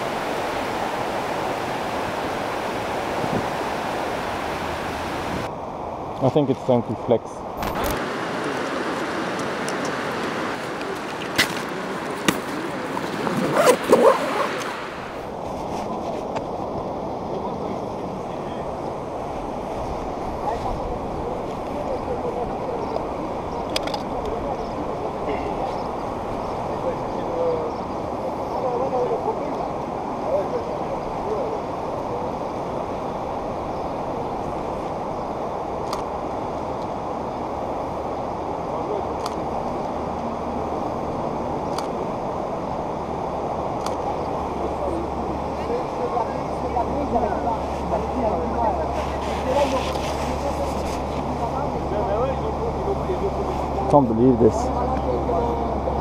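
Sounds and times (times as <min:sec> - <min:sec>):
river rushing: 0:00.0 - 0:06.1, 0:07.4 - 0:15.5, 0:16.5 - 0:56.0
steady rushing noise: 0:00.0 - 0:23.6
knocking and rustling of gear: 0:11.3 - 0:14.2.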